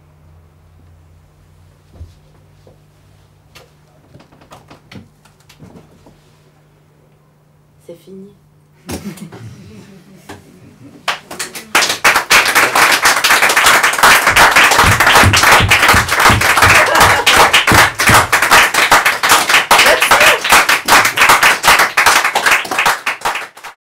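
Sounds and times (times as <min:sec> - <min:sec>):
audience clapping: 0:11.0 - 0:23.8.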